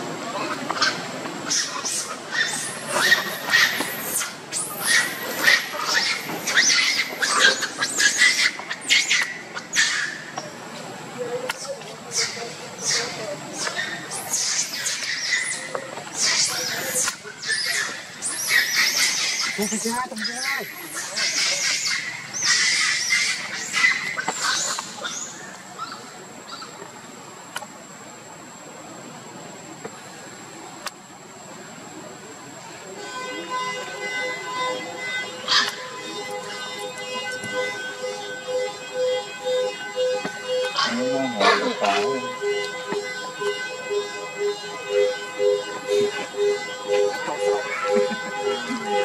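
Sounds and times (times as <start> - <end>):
monkey screaming: 0.4 - 10.3, 12.1 - 26.6, 35.3 - 36.8, 40.7 - 42.5.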